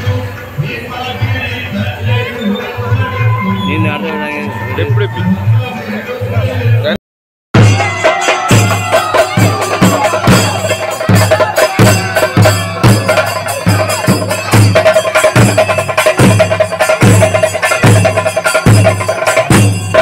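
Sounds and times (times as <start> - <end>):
deep drum struck steadily: 7.6 - 20.0.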